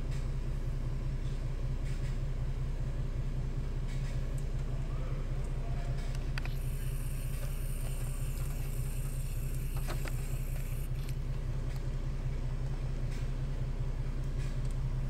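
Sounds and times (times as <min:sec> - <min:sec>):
car engine hum from inside: 0:00.0 - 0:15.0
high hiss: 0:06.5 - 0:10.9.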